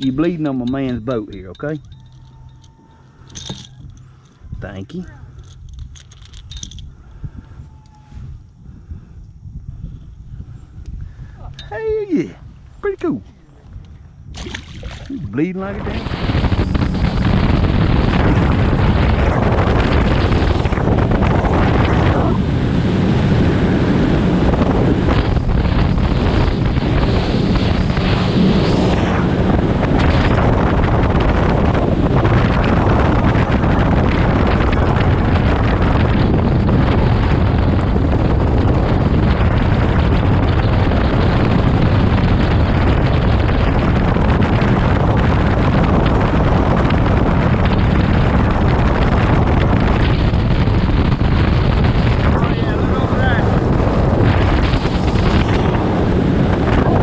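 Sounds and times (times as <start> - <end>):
wind buffeting microphone: 0.0 - 57.0
water rushing past hull: 14.3 - 16.4.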